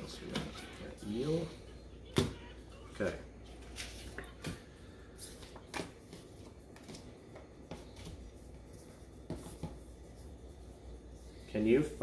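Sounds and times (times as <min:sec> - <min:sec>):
cards rustling: 0:03.0 - 0:10.4.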